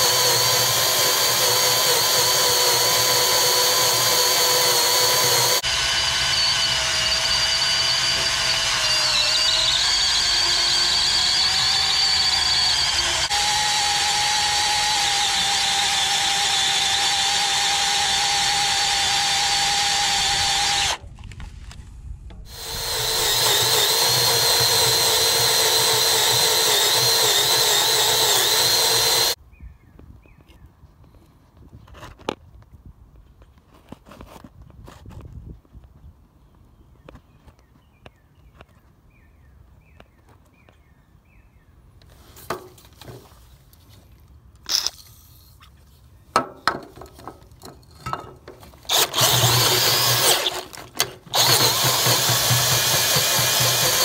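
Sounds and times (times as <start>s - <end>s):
power drill boring through steel: 0.0s - 21.0s, 22.5s - 29.4s, 48.9s - 54.0s.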